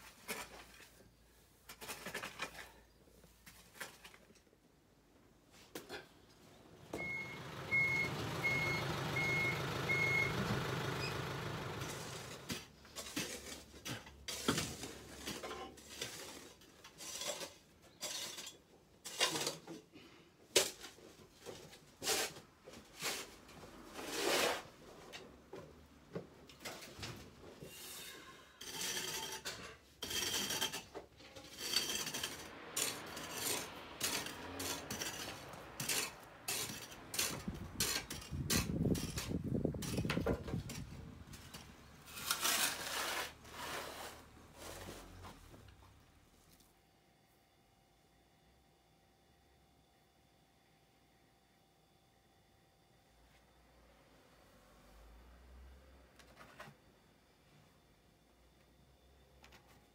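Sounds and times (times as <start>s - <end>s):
hard objects clinking and clattering: 28.6s - 42.6s.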